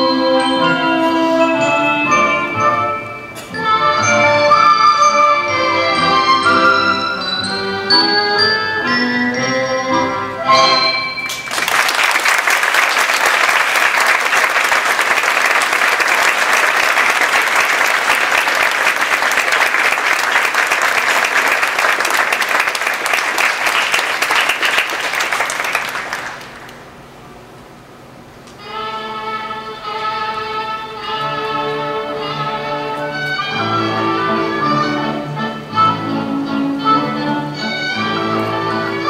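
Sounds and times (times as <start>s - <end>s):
orchestra chord: 0.0s - 11.4s
audience applauding: 11.3s - 26.9s.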